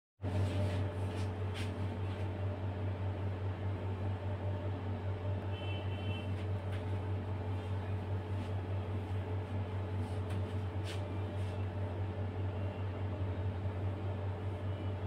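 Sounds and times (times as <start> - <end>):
low motor hum: 0.2 - 15.0.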